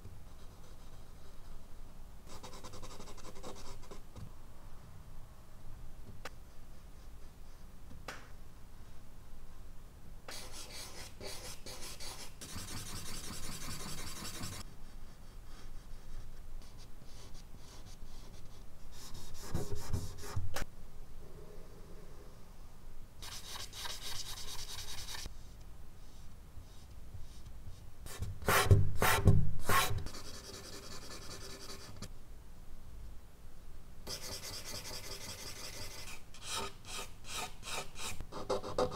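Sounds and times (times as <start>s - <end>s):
charcoal scratching on paper: 34.1s - 38.9s.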